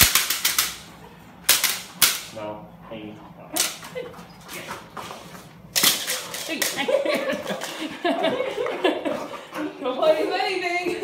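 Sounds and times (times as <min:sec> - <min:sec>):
split stick cracking: 0:00.0 - 0:00.9.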